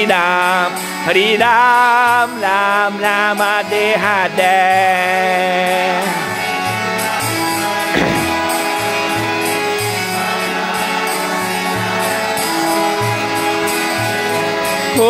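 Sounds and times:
harmonium holding notes: 0:00.0 - 0:15.0
low drum thuds: 0:08.0 - 0:08.7.

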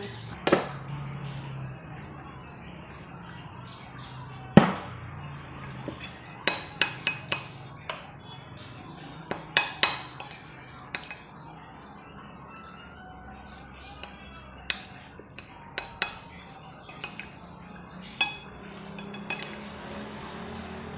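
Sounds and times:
cutlery clinking on plate: 0:05.6 - 0:08.1, 0:09.3 - 0:11.4, 0:14.0 - 0:17.4, 0:18.2 - 0:19.8.

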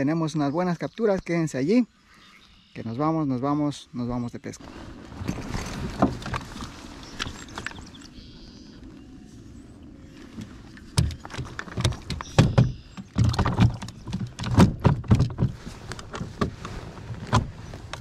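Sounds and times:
kayak pedal drive knocking and rattling: 0:05.2 - 0:07.9, 0:10.3 - 0:18.0.

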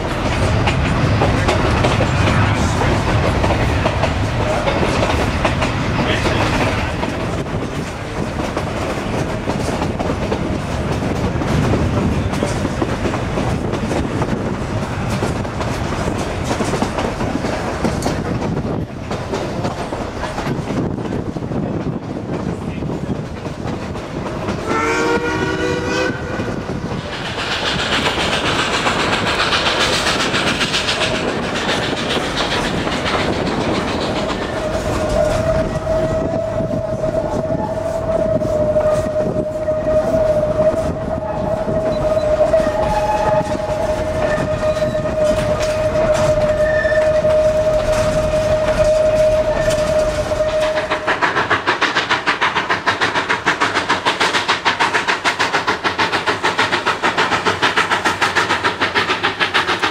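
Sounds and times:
steam hissing: 0:00.0 - 0:59.9
steam train running: 0:00.0 - 0:59.9
steam whistle blast: 0:24.6 - 0:26.4, 0:34.7 - 0:51.1
high-pitched squeal: 0:34.0 - 0:51.2.

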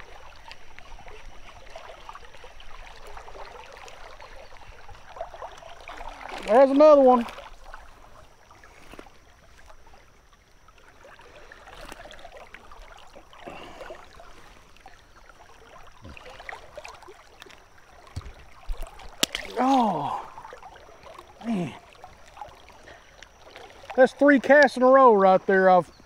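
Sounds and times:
river water running: 0:00.0 - 0:26.0
person's wordless vocal sound: 0:19.5 - 0:20.4, 0:21.4 - 0:21.8.

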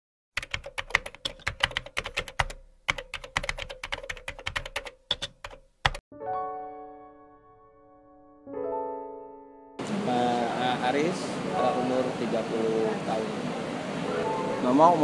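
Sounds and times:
keyboard typing clicks: 0:00.4 - 0:06.0.

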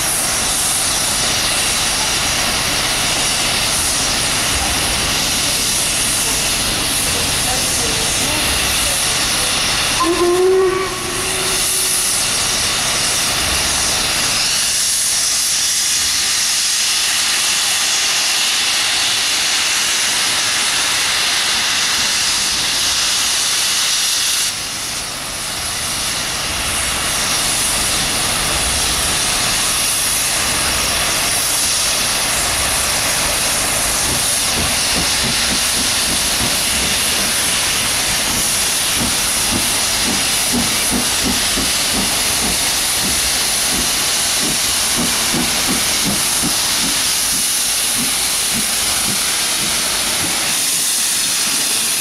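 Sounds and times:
steam locomotives hissing: 0:00.0 - 0:52.0
steam whistle blast: 0:09.8 - 0:12.8.

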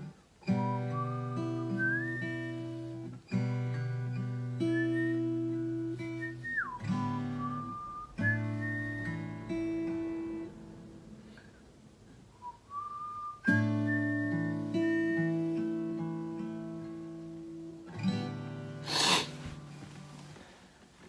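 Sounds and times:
acoustic guitar chords and bass notes: 0:00.0 - 0:20.2
faint whistle-like tone: 0:00.4 - 0:03.1, 0:04.6 - 0:09.9, 0:12.4 - 0:15.8
scratchy guitar rasp: 0:18.8 - 0:19.6.

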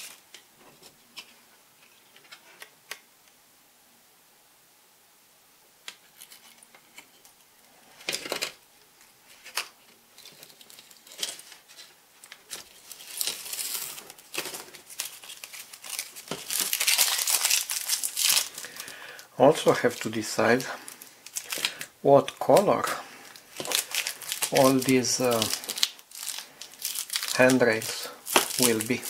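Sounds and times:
crinkling and rustling: 0:00.0 - 0:03.0, 0:05.8 - 0:29.0.

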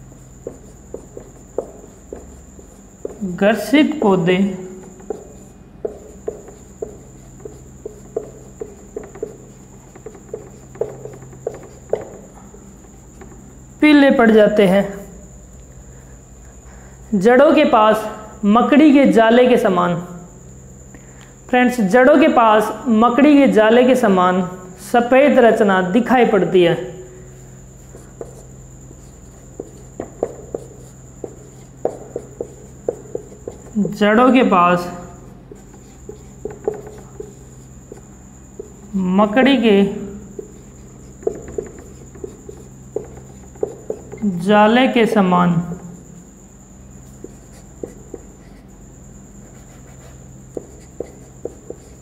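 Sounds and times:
marker squeaking on whiteboard: 0:00.0 - 0:13.6, 0:27.8 - 0:39.0, 0:40.2 - 0:44.4, 0:46.9 - 0:52.0
steady low hum: 0:00.0 - 0:52.0.

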